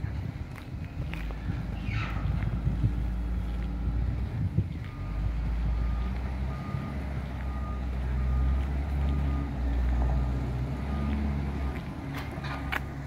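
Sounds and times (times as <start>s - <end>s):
low engine rumble: 0.0s - 13.0s
reversing alarm beeps: 4.8s - 11.9s.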